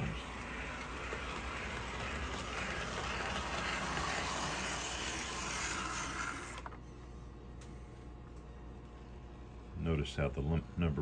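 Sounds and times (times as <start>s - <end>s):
toy train motor whirring: 0.0s - 6.8s.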